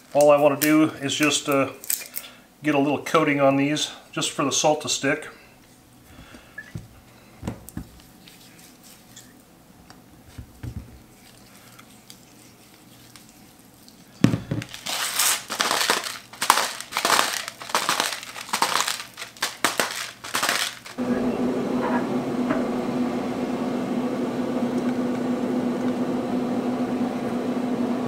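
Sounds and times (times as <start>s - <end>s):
faint handling sounds: 5.6s - 21.0s
salt grinder crunching: 11.1s - 21.0s.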